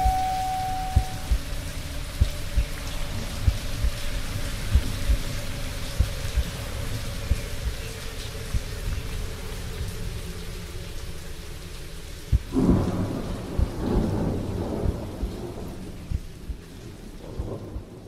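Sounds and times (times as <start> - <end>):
thunder rumbling: 0.0 - 1.6, 12.3 - 18.0
steady rain: 0.0 - 18.0.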